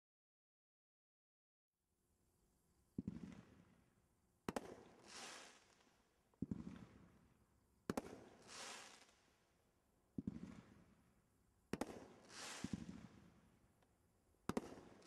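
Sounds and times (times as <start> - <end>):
hissing crackle: 5.0 - 5.8, 8.4 - 9.2, 12.3 - 12.8
firework launch thump: 12.4 - 13.0.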